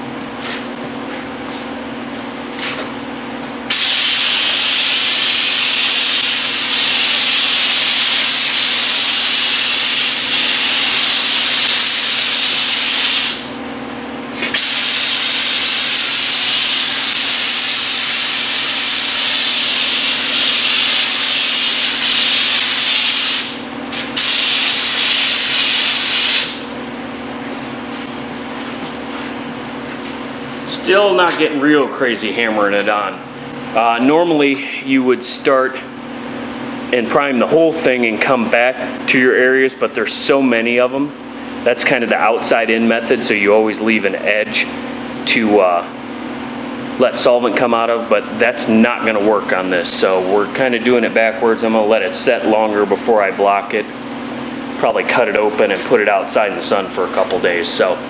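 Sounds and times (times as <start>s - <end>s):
steady low hum: 0.0s - 58.0s
spray gun hissing: 3.7s - 13.5s, 14.6s - 23.6s, 24.2s - 26.6s.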